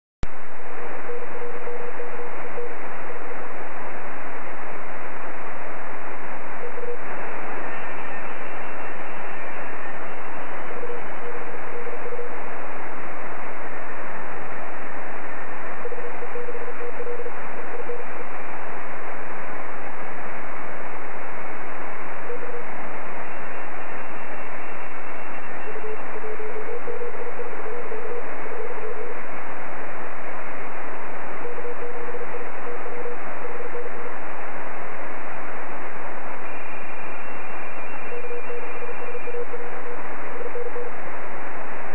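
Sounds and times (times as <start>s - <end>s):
faint high morse signals: 0.2s - 41.9s
radio receiver hiss: 0.3s - 41.9s
morse code tone: 22.3s - 29.2s, 36.4s - 40.9s.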